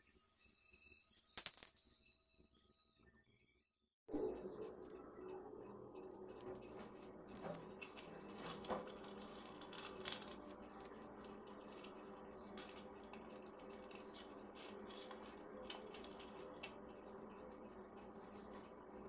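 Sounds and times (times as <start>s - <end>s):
steady low hum: 4.1s - 19.0s.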